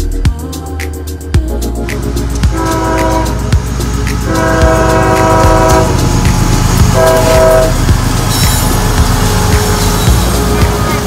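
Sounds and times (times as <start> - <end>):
locomotive engine rumble: 1.4 - 11.0
train air horn blasts: 2.5 - 3.5, 4.2 - 6.2, 6.8 - 7.9
wheels clicking over rail joints: 3.7 - 11.0.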